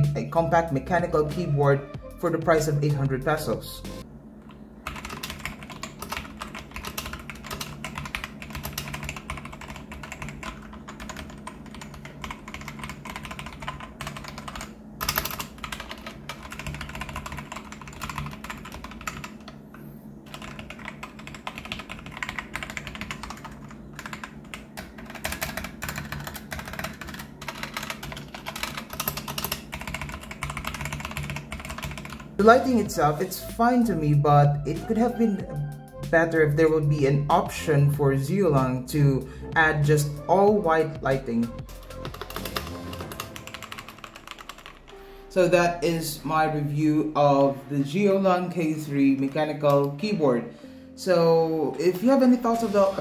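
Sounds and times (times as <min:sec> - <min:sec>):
mechanical keyboard typing: 0:04.8 - 0:19.6, 0:20.3 - 0:32.7, 0:40.9 - 0:45.0, 0:48.8 - 0:50.2.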